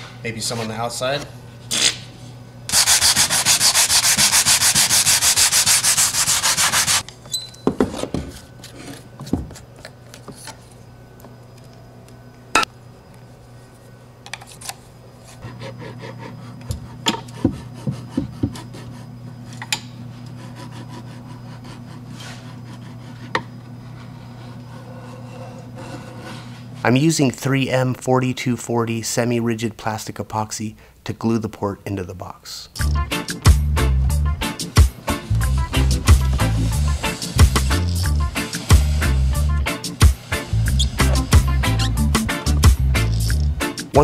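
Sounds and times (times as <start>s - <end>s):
steady low hum: 0.0s - 44.0s
sandpaper rubbing plastic tube: 2.7s - 7.0s, 35.4s - 39.5s, 40.4s - 42.3s.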